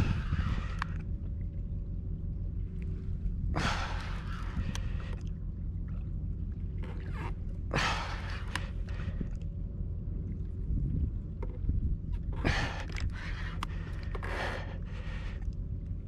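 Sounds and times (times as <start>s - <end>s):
wind rumbling on microphone: 0.0s - 16.0s
faint clicks: 4.4s - 5.4s, 8.4s - 9.5s, 12.8s - 15.7s.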